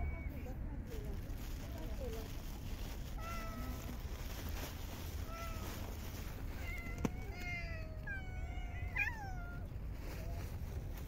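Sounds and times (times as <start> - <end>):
cat meowing: 3.1 - 4.0, 5.2 - 9.7.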